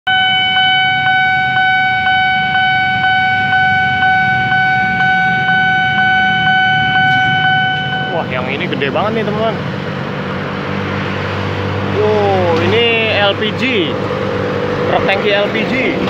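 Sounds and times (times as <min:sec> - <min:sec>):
pulsing warning siren: 0:00.1 - 0:08.4.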